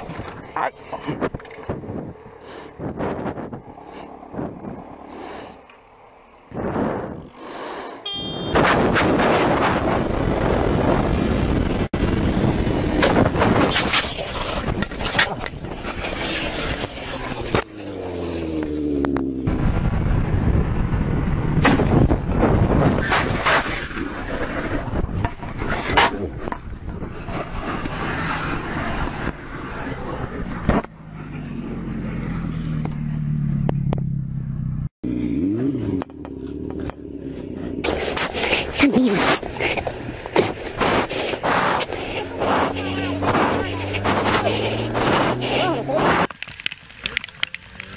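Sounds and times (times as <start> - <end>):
motorcycle scraping along road: 0.0 - 19.5, 22.2 - 47.9
metal grinding on asphalt: 13.5 - 18.6, 37.8 - 47.9
engine rising and falling in pitch: 27.5 - 38.2
motorcycle engine running: 30.9 - 38.8, 41.8 - 46.3
broad noisy rush: 37.8 - 46.4.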